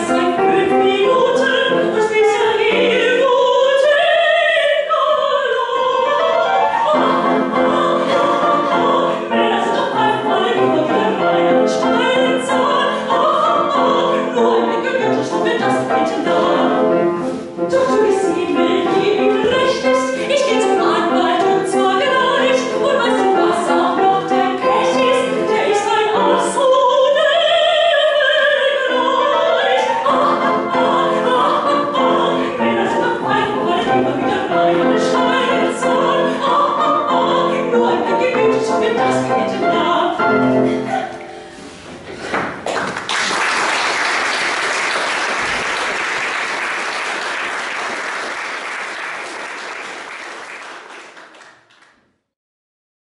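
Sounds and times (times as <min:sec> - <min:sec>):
piano accompaniment: 0:00.0 - 0:43.4
audience applauding: 0:42.6 - 0:52.0.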